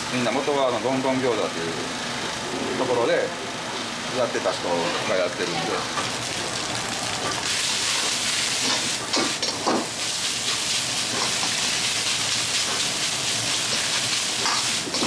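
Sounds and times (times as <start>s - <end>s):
rice sizzling in a wok: 5.9s - 15.0s.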